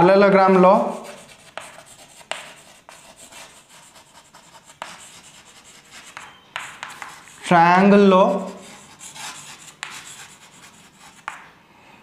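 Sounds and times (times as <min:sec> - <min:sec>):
chalk scraping on blackboard: 0:00.5 - 0:07.5, 0:08.2 - 0:11.5
chalk tapping on blackboard: 0:00.5 - 0:07.5, 0:08.3 - 0:11.5.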